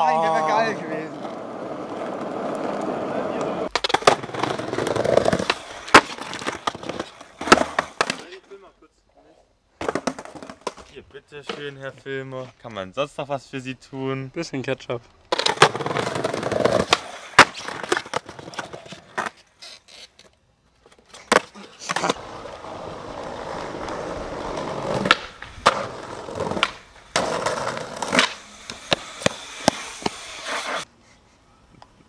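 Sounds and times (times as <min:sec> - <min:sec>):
skateboard wheels rolling on concrete: 0:00.0 - 0:08.6, 0:09.2 - 0:13.0, 0:14.4 - 0:32.0
skateboard clacking: 0:01.1 - 0:08.3, 0:15.3 - 0:19.4, 0:21.1 - 0:30.9.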